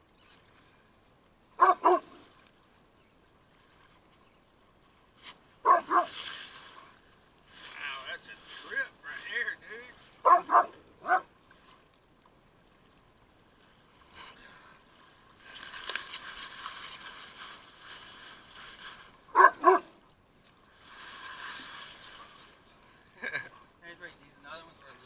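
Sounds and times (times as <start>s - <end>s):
dog barking: 1.6s - 2.2s, 5.6s - 6.1s, 10.2s - 11.3s, 19.3s - 19.9s
steady hiss: 6.2s - 10.3s.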